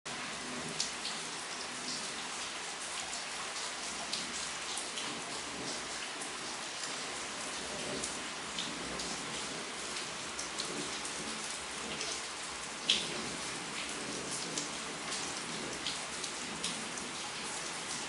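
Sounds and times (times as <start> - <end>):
aquarium water trickling and bubbling: 0.1 - 18.0
small splashes and drips: 0.1 - 18.0.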